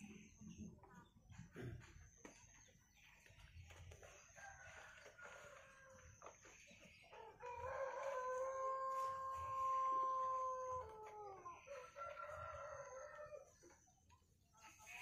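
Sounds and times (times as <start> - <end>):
roosters crowing: 4.3 - 6.5, 7.1 - 13.6.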